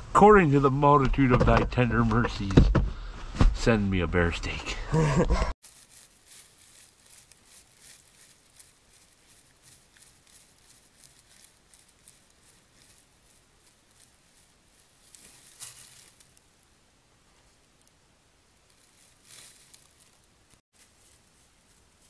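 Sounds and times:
rustling of dry leaf litter: 5.6s - 22.0s.

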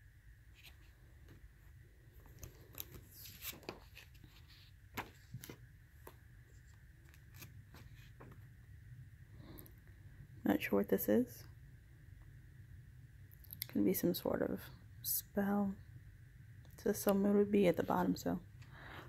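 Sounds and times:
paper and card rustling: 2.2s - 8.4s.

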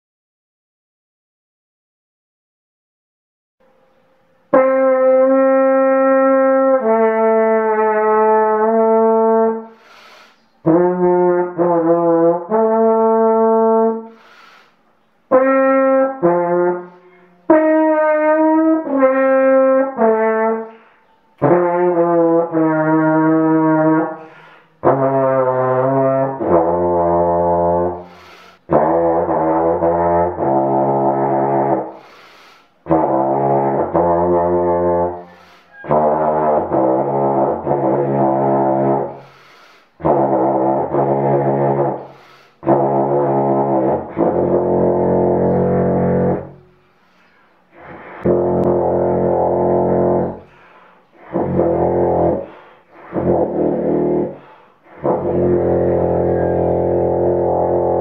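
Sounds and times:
alphorn melody: 3.6s - 9.7s, 10.6s - 14.0s, 15.3s - 32.0s, 32.8s - 39.2s, 40.0s - 46.8s, 47.7s - 58.0s
player breathing: 9.7s - 10.6s, 14.1s - 14.9s, 24.1s - 24.8s, 28.0s - 28.7s, 31.9s - 32.8s, 35.2s - 35.8s, 39.1s - 40.0s, 42.0s - 42.6s, 50.4s - 51.2s, 52.4s - 53.1s, 54.3s - 55.0s.

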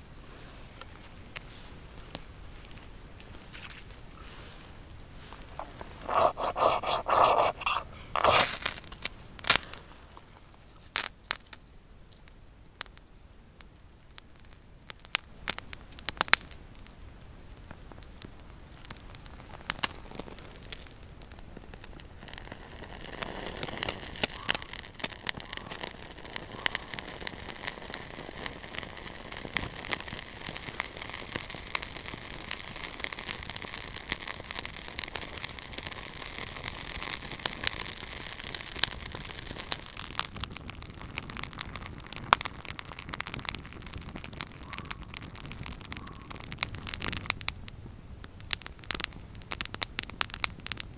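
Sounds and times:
kindling crackling in stove: 0.2s - 11.6s, 12.2s - 50.9s
ferrocerium rod scraped with striker: 5.6s - 8.7s.

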